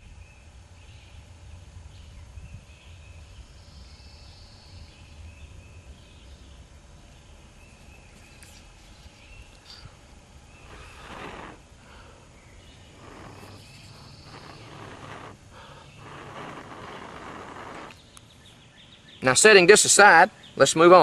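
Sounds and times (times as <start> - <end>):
wind rumble on microphone: 1.2 - 3.6, 12.8 - 18.0
insect chirps: 1.8 - 19.3
faint bird chirps: 2.0 - 19.4.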